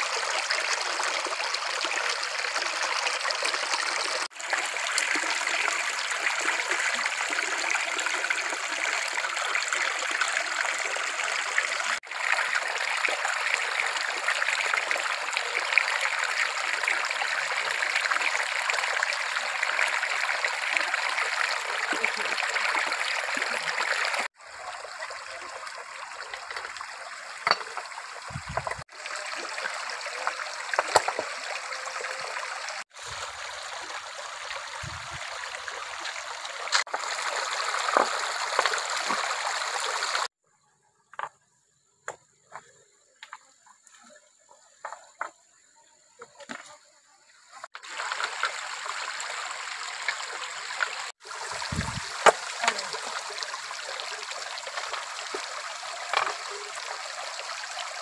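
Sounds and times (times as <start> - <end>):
stream water trickling over rocks: 0.0 - 40.3, 47.5 - 58.0
small splashes and clicks: 54.1 - 57.0.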